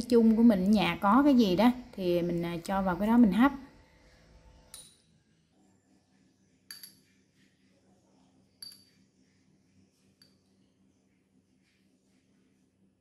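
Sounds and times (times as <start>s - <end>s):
metal spoon clinking on glass: 4.7s - 5.0s, 6.7s - 7.1s, 8.6s - 9.0s.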